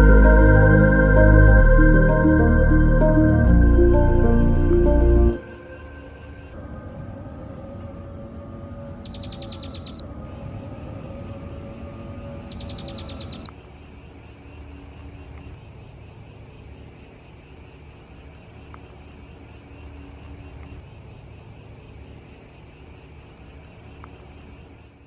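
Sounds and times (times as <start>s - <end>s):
background music: 0.0s - 6.6s
insect chorus buzzing: 4.4s - 25.0s.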